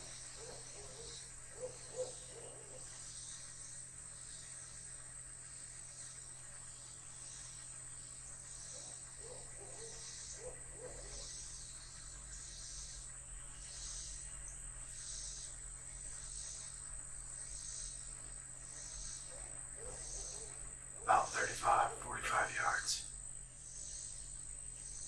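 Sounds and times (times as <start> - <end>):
insects chirping: 0.0 - 25.0
faint low calls: 21.0 - 23.0.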